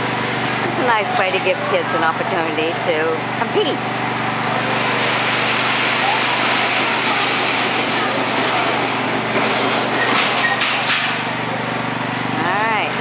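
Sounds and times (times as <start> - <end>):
tractor engine idling: 0.0 - 10.1.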